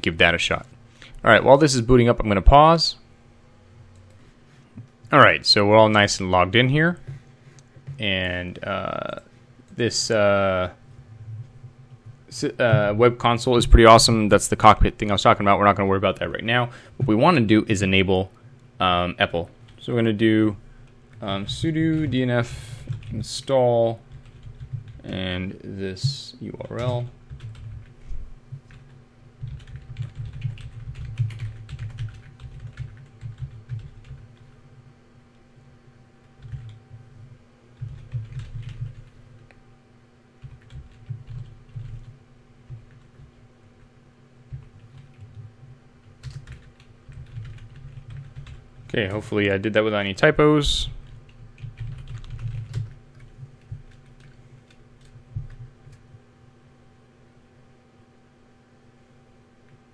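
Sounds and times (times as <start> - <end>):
typing on keyboard: 22.9 - 23.1, 24.1 - 25.0, 26.8 - 27.9, 28.7 - 34.2, 36.4 - 36.8, 37.8 - 39.2, 40.4 - 43.4, 44.5 - 45.5, 46.1 - 48.6, 51.0 - 56.0.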